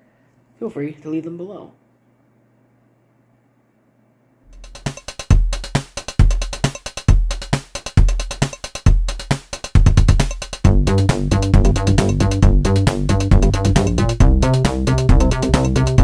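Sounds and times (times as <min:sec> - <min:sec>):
electronic music with drum-machine beat: 0:04.5 - 0:16.0.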